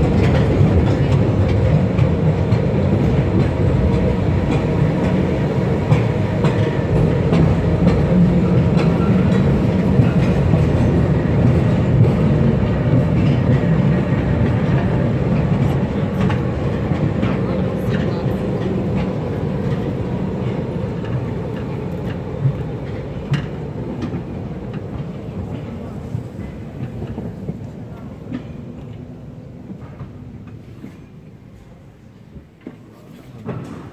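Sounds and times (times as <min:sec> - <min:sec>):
train rumbling along rails: 0:00.0 - 0:33.9.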